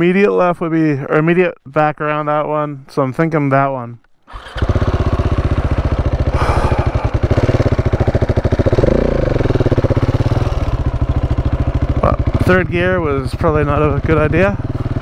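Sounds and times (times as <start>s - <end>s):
motorcycle engine running: 4.4s - 15.0s.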